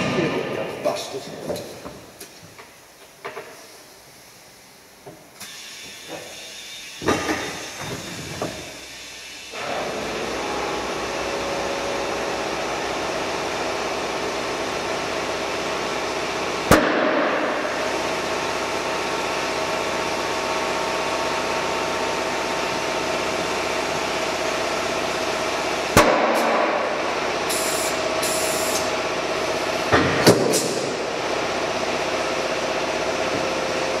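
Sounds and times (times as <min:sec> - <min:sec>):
compressed air hissing: 0:05.4 - 0:09.6, 0:27.0 - 0:28.9.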